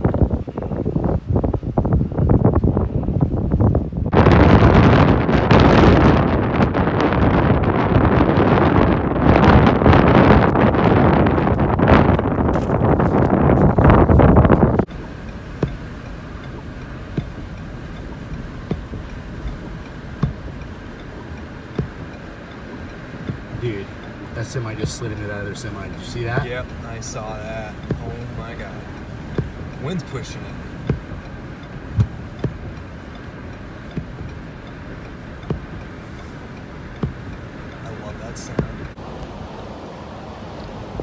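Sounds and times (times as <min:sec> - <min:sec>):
blizzard wind rushing: 0:00.0 - 0:41.0
car road and engine noise: 0:00.0 - 0:41.0
windshield wiper knocking: 0:09.9 - 0:39.0.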